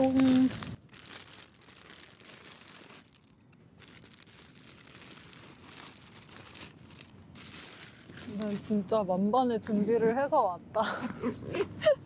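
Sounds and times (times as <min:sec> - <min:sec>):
plastic packaging crinkling: 0:00.0 - 0:08.8.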